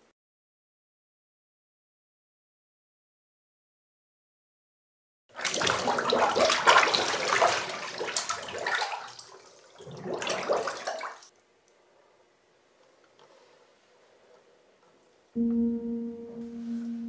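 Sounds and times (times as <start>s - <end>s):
bathwater splashing: 5.3s - 11.4s.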